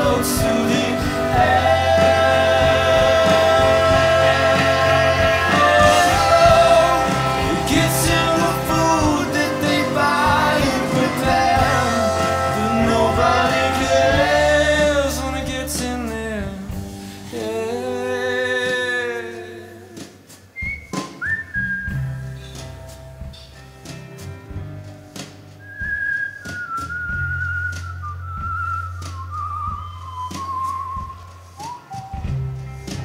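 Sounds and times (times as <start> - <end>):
electric guitar: 0.0 - 20.3
drums: 0.0 - 33.0
high whistled note: 20.5 - 22.6, 25.6 - 33.0.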